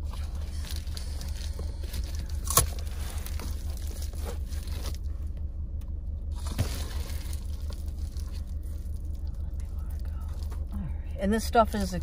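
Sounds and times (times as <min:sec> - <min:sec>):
foil insulation crinkling: 0:00.0 - 0:05.1, 0:06.3 - 0:10.8
steady low hum: 0:00.0 - 0:12.0.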